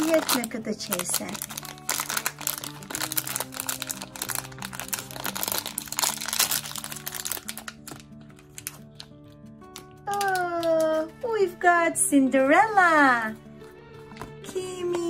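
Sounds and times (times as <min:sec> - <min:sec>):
foil bag crinkling and tearing: 0:00.0 - 0:09.2, 0:09.8 - 0:11.1
background music with held notes: 0:00.0 - 0:15.0.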